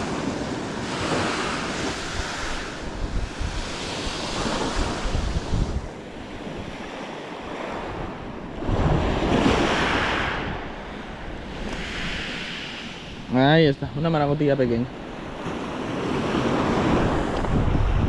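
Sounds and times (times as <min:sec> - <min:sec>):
surf breaking on rocky shore: 0:00.0 - 0:18.0
wind buffeting microphone: 0:00.0 - 0:18.0.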